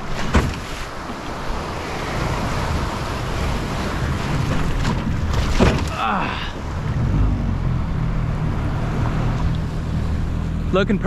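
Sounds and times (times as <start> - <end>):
sharp knocks or splashes: 0.0 - 1.4, 4.2 - 6.2
wind buffeting microphone: 0.0 - 10.7
surf breaking: 0.0 - 11.0.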